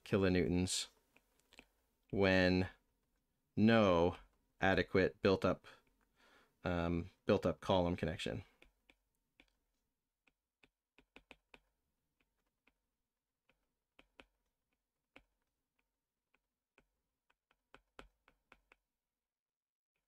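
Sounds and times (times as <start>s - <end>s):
stylus tapping on tablet screen: 8.6s - 19.0s.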